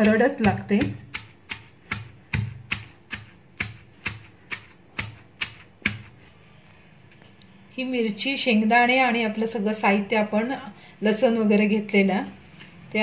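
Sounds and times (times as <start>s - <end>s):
stone pestle pounding in mortar: 0.0s - 6.2s.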